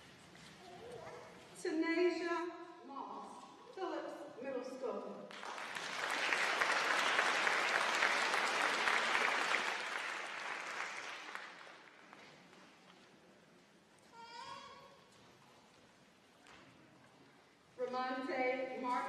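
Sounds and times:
audience applauding: 5.3s - 12.3s.

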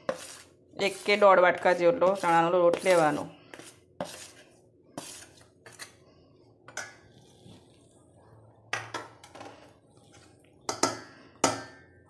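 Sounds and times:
spoon scraping metal bowl: 0.0s - 6.0s, 9.0s - 11.6s.

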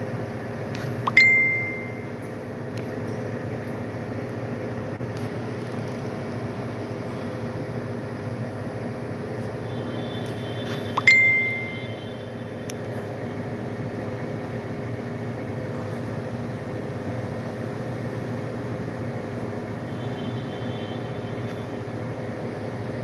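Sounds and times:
steady low hum: 0.0s - 23.0s
sharp ringing clink: 1.1s - 2.1s, 11.0s - 11.9s.

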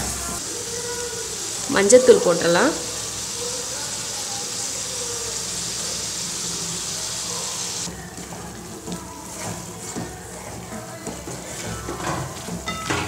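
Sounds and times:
food sizzling in a pan: 0.0s - 13.0s
spoon stirring in a pan: 2.9s - 13.0s.

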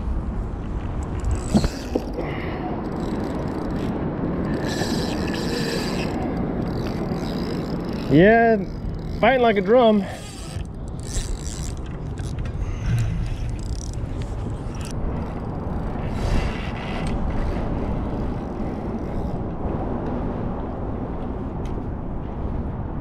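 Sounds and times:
steady low rumble: 0.0s - 23.0s
fishing reel cranking: 0.9s - 19.4s.

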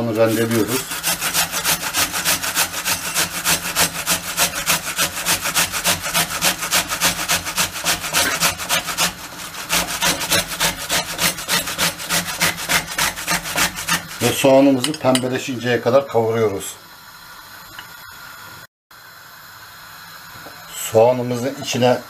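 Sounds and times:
onion grated on metal grater: 0.0s - 15.2s.

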